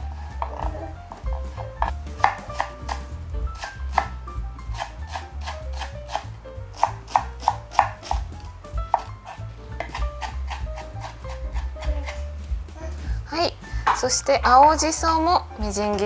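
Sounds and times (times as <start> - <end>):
knife chopping on wooden board: 0.4 - 12.4.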